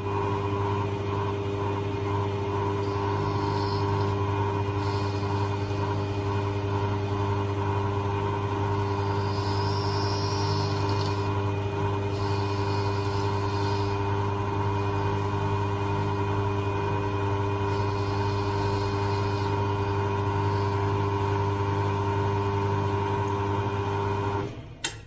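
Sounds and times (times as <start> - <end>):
lathe motor hum: 0.0 - 24.6
high cutting hiss: 2.8 - 6.2, 8.8 - 11.4, 12.1 - 14.0, 17.7 - 19.6.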